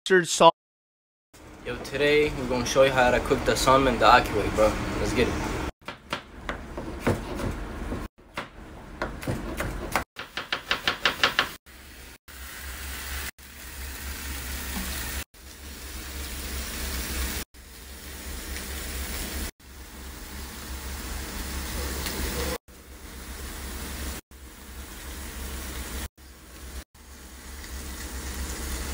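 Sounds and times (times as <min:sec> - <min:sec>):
knife chopping on cutting board: 0:05.8 - 0:11.6
hissing kitchen noise: 0:10.2 - 0:28.9.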